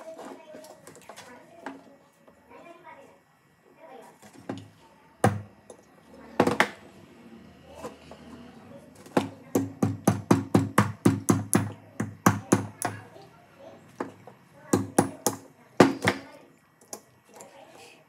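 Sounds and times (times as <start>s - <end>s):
small hammer tapping a nail: 9.6s - 13.0s.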